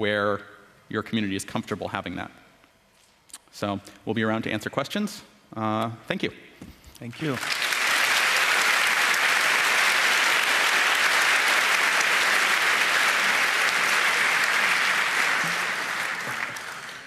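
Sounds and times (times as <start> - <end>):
large audience applauding: 7.1 - 17.0.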